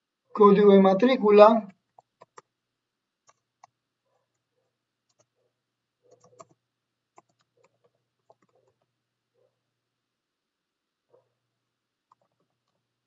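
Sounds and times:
faint steady hum: 0.0 - 13.0
keystrokes on computer keyboard: 1.8 - 2.5, 3.2 - 5.4, 6.1 - 8.9, 12.1 - 12.8.

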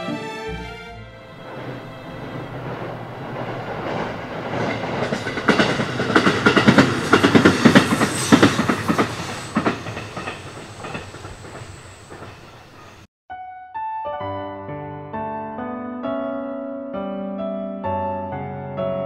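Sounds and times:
railcar wheels clacking on rail joints: 1.4 - 13.0.

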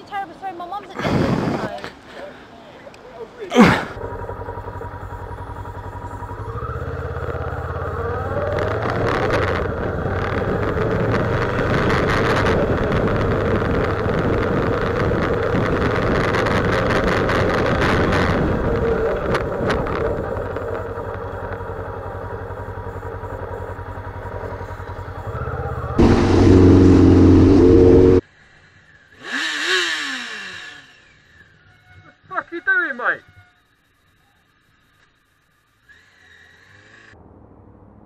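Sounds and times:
wind rushing over microphone: 1.0 - 1.8, 8.2 - 21.3
motorcycle engine running: 4.0 - 28.2.

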